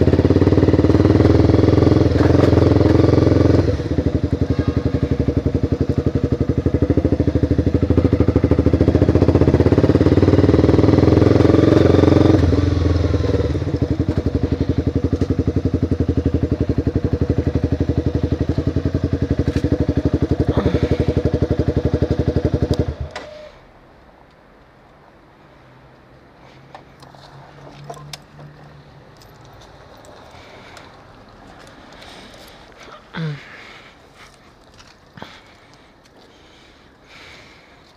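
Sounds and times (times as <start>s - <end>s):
motorcycle engine running: 0.0s - 23.2s.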